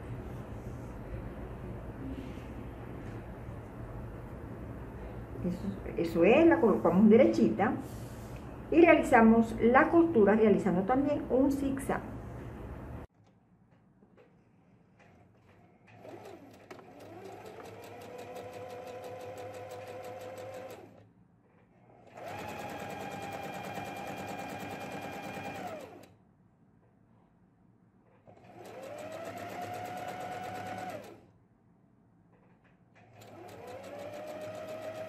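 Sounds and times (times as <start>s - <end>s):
sewing machine motor whining: 22.0s - 26.1s, 28.3s - 31.2s, 33.1s - 35.0s
sewing machine needle ticking: 33.1s - 35.0s.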